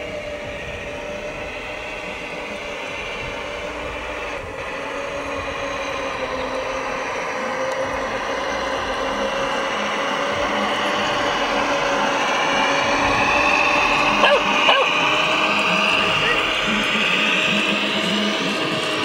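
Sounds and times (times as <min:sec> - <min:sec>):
toy truck motor whining: 0:00.0 - 0:19.0.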